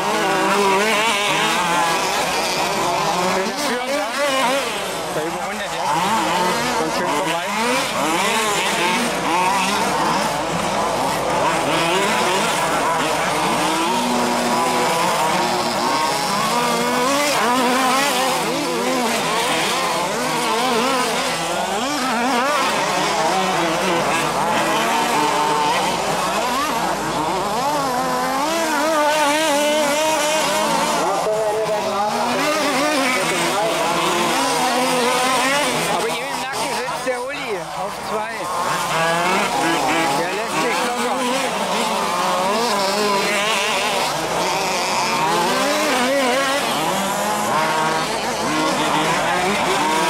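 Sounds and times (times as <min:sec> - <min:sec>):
model buggy engines revving: 0:00.0 - 0:50.0.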